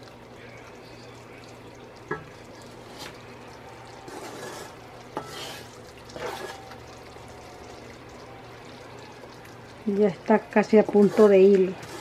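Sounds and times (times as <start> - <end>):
spatula scraping swishes: 10.9 - 12.0.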